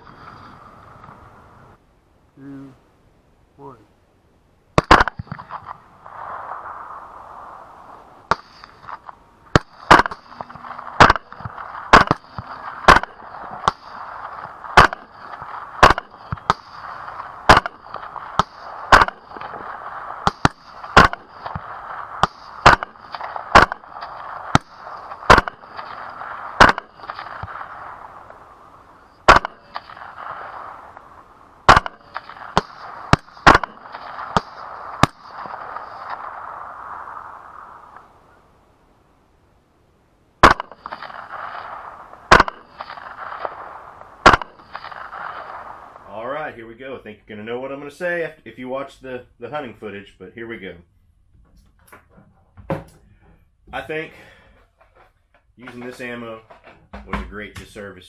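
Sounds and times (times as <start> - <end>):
suppressed rifle shots: 4.8 - 38.1, 40.4 - 46.0.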